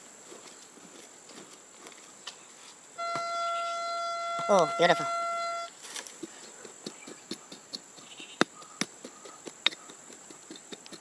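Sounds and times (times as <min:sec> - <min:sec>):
hand hoe scraping dry soil: 0:05.8 - 0:11.0.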